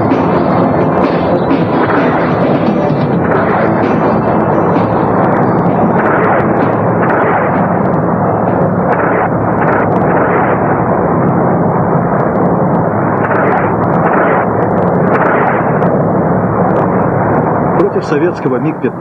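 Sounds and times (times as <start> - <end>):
gunfire: 0.0 - 16.1
explosions: 0.0 - 18.3
engine drone: 0.0 - 19.0
short crackles: 5.2 - 17.5.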